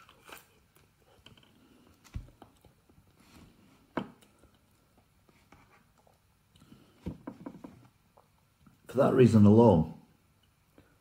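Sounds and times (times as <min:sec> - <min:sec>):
soft chewing: 0:00.0 - 0:07.0.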